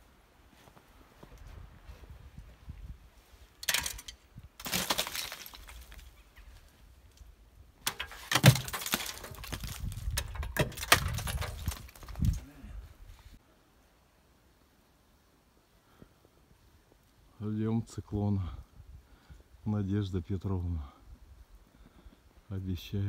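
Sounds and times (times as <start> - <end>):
ice cracking and shattering: 4.6 - 6.1, 7.8 - 12.4.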